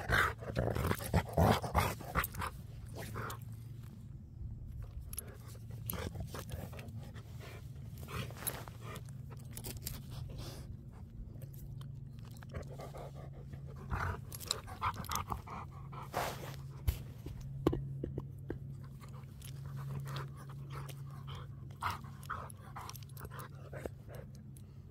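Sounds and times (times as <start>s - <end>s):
small clicks and rustles: 1.9s - 15.5s, 16.6s - 24.9s
dog panting: 12.4s - 17.0s, 18.9s - 24.6s.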